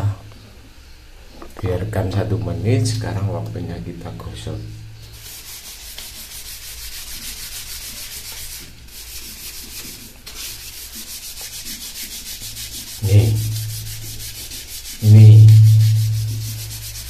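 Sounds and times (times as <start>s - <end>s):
scrub brush scouring toilet: 4.4s - 17.0s.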